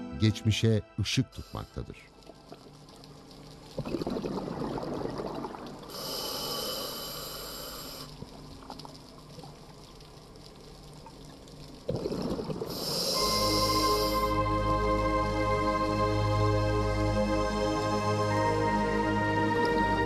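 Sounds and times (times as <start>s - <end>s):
regulator inhalation hiss: 1.3s - 2.0s, 5.9s - 8.2s, 12.7s - 14.6s
exhaled bubbles underwater: 2.2s - 14.3s.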